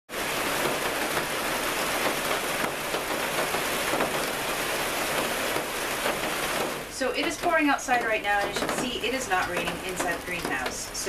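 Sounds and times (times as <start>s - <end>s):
heavy rain on plastic roof: 0.1s - 11.0s.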